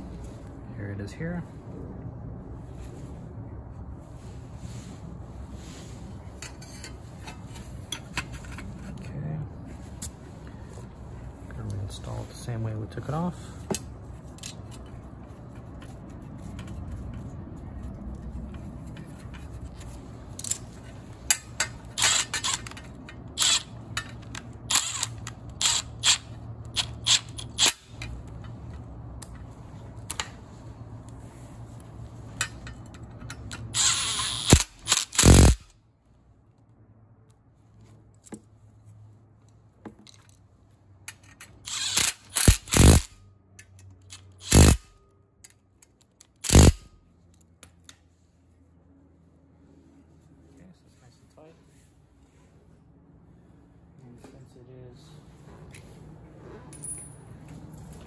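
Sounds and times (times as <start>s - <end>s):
small metal clicks and scrapes: 13.7s - 30.4s, 31.0s - 35.7s, 41.0s - 48.0s.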